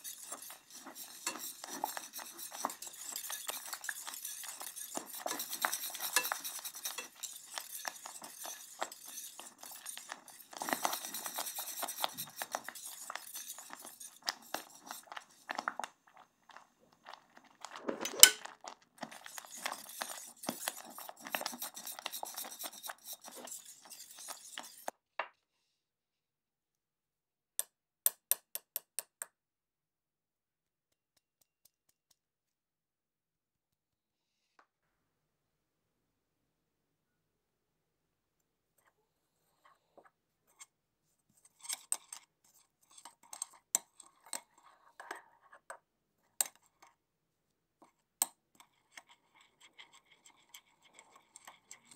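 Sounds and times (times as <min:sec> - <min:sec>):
whisk scraping saucepan: 0:00.0 - 0:25.0, 0:41.3 - 0:46.9, 0:47.8 - 0:51.9.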